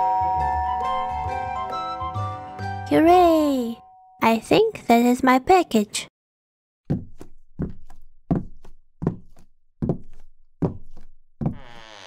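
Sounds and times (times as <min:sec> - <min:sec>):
cartoon footsteps soft thuds: 0:06.9 - 0:11.8.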